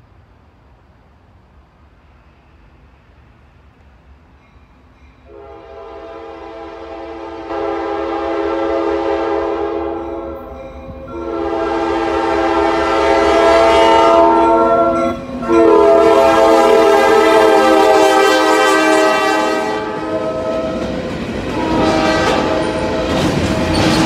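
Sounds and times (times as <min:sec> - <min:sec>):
low rumble of passing train: 0:00.0 - 0:24.0
locomotive air horn blasts: 0:05.3 - 0:10.5, 0:11.1 - 0:20.8, 0:21.5 - 0:24.0.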